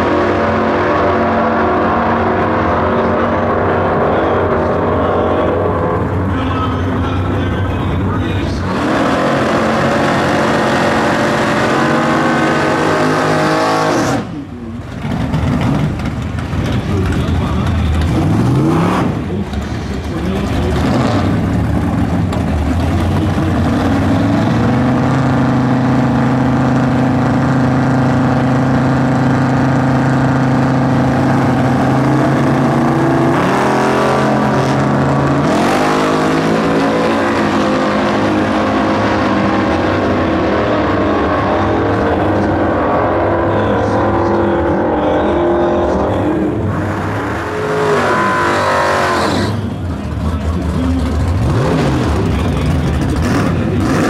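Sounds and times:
drag car engines revving: 0:00.0 - 0:54.0
cars accelerating through gears: 0:08.5 - 0:14.5, 0:16.9 - 0:54.0.

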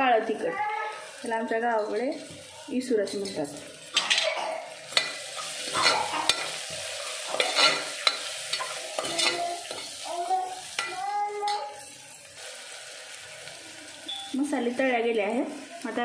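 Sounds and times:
onions sizzling in hot oil: 0:00.0 - 0:16.0
spoon scraping pot: 0:07.3 - 0:09.9.

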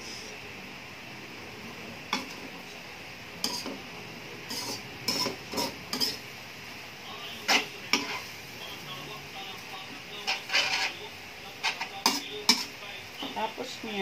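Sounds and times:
metal spatula scraping a wok: 0:03.4 - 0:03.8, 0:04.5 - 0:06.2, 0:07.4 - 0:08.8, 0:09.6 - 0:12.8.

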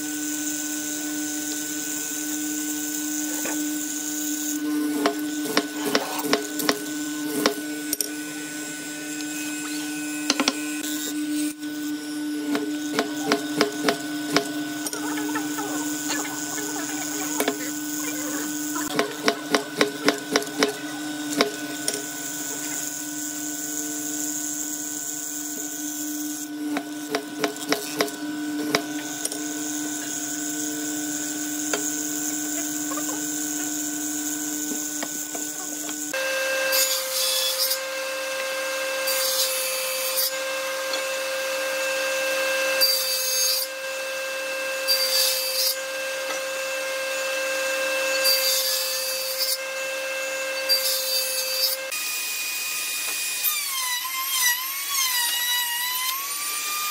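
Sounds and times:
mortiser motor hum: 0:00.0 - 0:39.2, 0:40.3 - 0:42.8
table saw cutting wood: 0:00.0 - 0:56.9.

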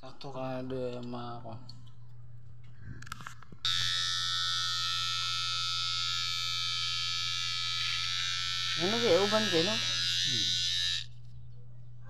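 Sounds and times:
electric hair clipper buzzing: 0:03.6 - 0:11.2.

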